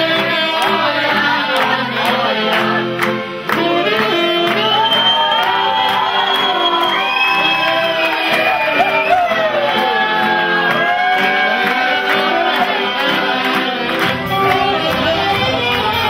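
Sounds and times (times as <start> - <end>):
music with singing over beat: 0.0 - 16.0
crowd shouting: 4.5 - 16.0.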